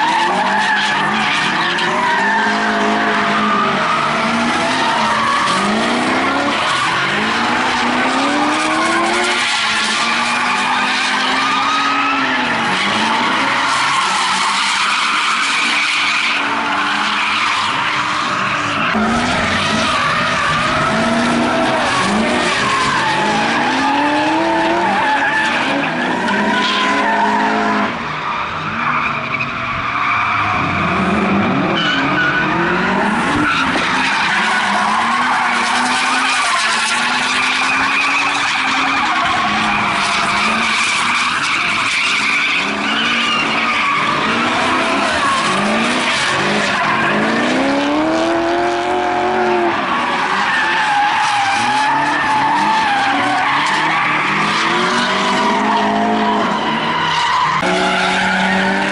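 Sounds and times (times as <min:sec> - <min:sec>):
car engines revving hard: 0:00.0 - 0:58.9
tyres squealing: 0:31.8 - 0:48.0, 0:49.6 - 0:58.9.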